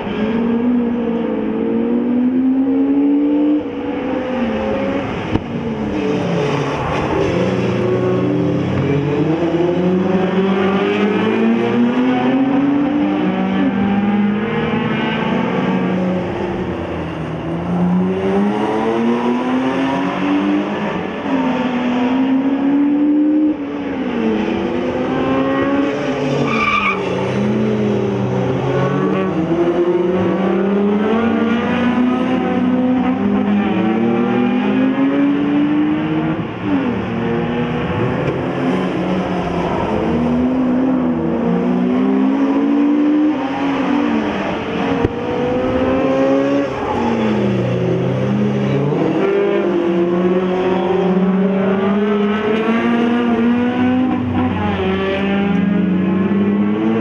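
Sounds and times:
race car engines revving: 0.0s - 57.0s.

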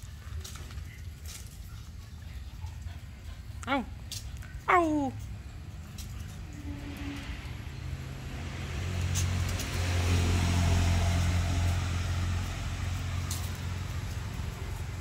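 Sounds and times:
vehicle driving past: 5.5s - 15.0s.

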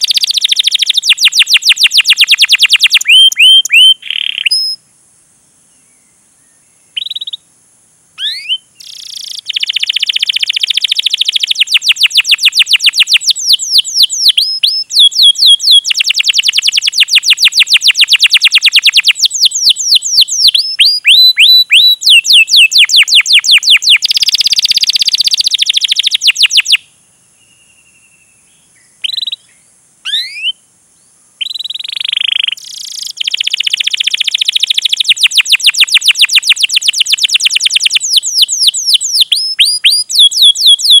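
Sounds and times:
canary singing: 0.0s - 4.8s, 6.9s - 7.4s, 8.2s - 26.8s, 27.4s - 30.6s, 31.4s - 41.0s
short canary calls: 0.0s - 4.8s, 6.9s - 7.5s, 8.2s - 30.6s, 31.4s - 41.0s.

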